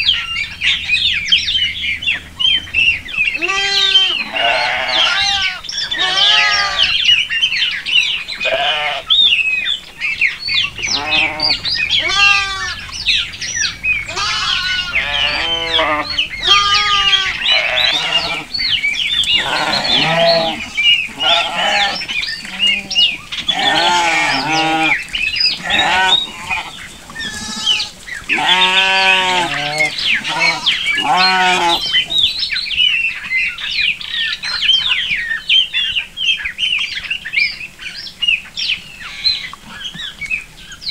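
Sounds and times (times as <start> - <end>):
macaws squawking: 3.3 - 7.3, 8.0 - 32.4.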